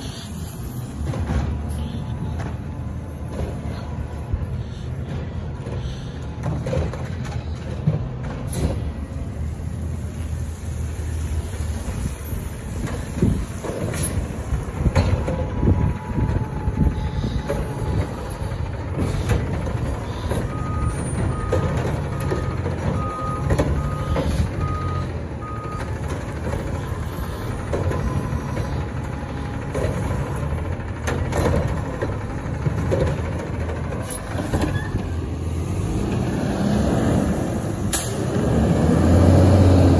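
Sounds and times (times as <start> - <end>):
diesel engine running: 0.0 - 39.9
backup alarm beeps: 20.4 - 26.0.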